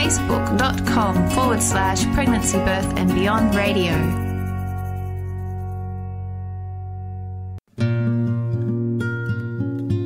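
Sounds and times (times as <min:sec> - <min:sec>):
acoustic guitar piece: 0:07.7 - 0:10.0.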